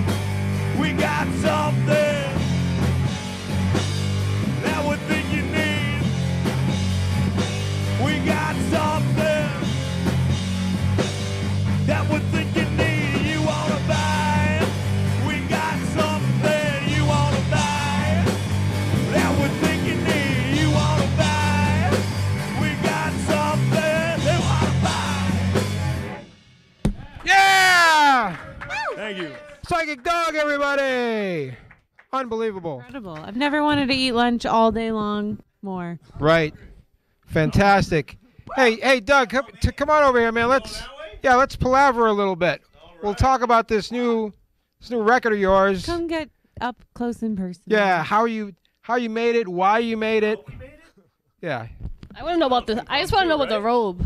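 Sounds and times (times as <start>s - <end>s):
electric bass: 0.0s - 26.4s
drum kit: 0.0s - 28.3s
man singing: 0.7s - 2.6s, 4.5s - 6.2s, 7.9s - 9.8s, 11.8s - 18.4s, 19.0s - 25.6s.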